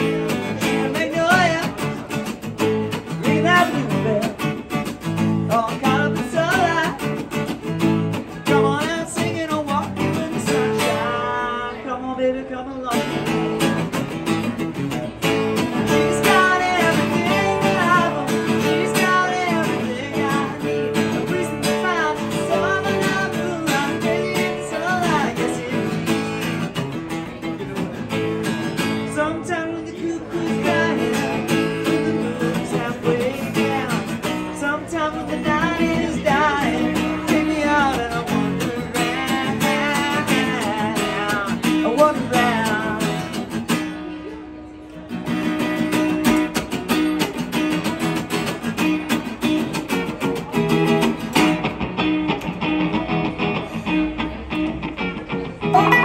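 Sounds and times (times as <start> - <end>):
acoustic guitar strumming chords: 0.0 - 11.8, 12.9 - 56.0
person singing: 15.7 - 26.4, 55.7 - 56.0.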